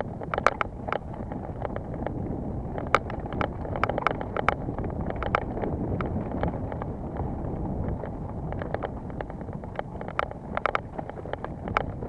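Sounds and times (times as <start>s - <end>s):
bike rumble: 0.0s - 12.0s
sharp clicks and rattles: 0.0s - 12.0s
wind buffeting microphone: 0.0s - 12.0s.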